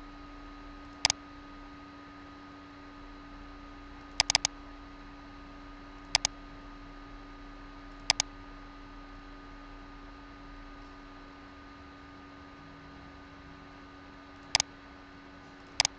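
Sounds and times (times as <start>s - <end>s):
steady low hum: 0.0s - 15.9s
mouse button clicks: 4.2s - 4.5s, 6.1s - 6.3s, 8.0s - 8.3s.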